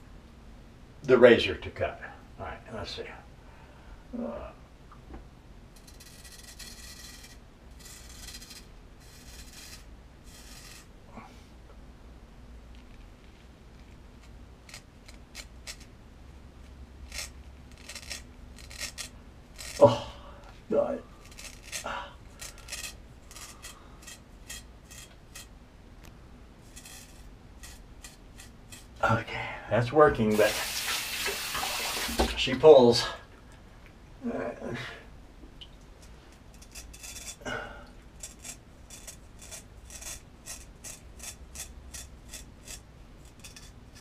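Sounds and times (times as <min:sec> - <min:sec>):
knife scraping beard whiskers: 0:05.8 - 0:11.0, 0:13.8 - 0:15.9, 0:17.0 - 0:19.9, 0:21.2 - 0:25.5, 0:26.6 - 0:29.0, 0:36.0 - 0:37.4, 0:38.1 - 0:44.0.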